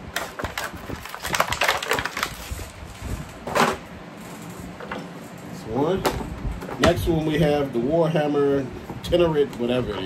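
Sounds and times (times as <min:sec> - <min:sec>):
plastic packaging crinkling: 0:00.1 - 0:03.0.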